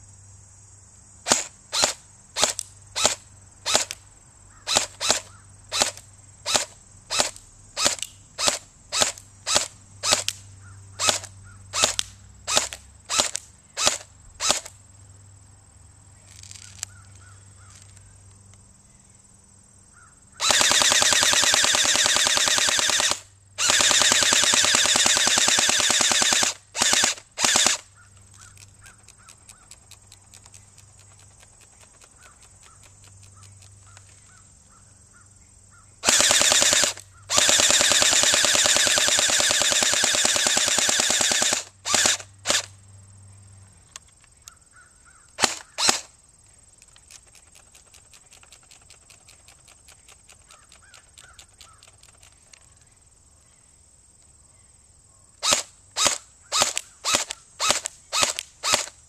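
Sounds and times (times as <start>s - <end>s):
airsoft rifle automatic bursts: 1.3s - 4.0s, 4.7s - 10.4s, 11.0s - 14.7s, 20.4s - 27.9s, 36.0s - 42.7s, 45.4s - 46.1s, 55.4s - 59.0s
airsoft rifle shots: 1.3s - 4.0s, 4.7s - 10.4s, 11.0s - 14.7s, 20.4s - 27.9s, 36.0s - 42.7s, 45.4s - 46.1s, 55.4s - 59.0s.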